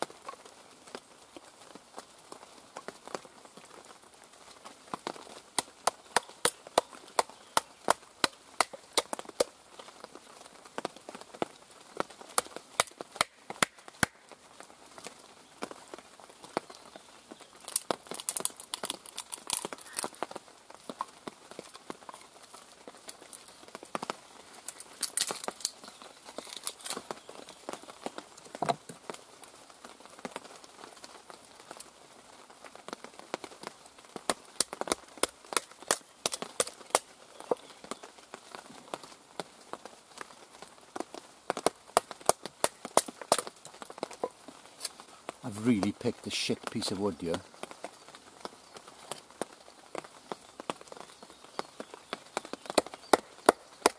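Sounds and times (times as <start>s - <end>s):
wood crackling: 0.0s - 53.9s.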